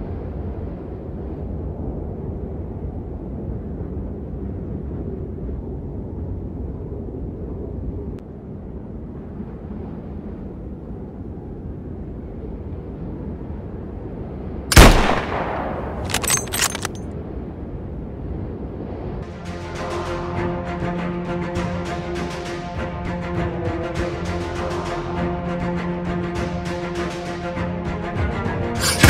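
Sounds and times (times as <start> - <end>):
rifle shot with echo: 14.7 - 16.9.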